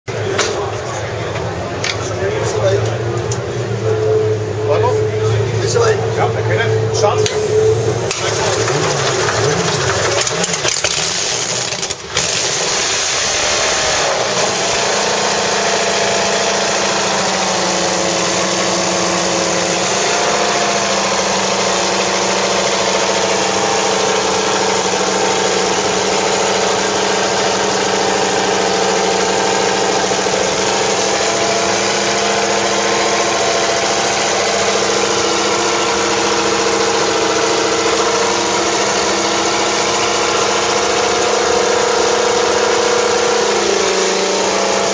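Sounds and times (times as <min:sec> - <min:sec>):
racing engine idling: 0:00.0 - 0:44.9.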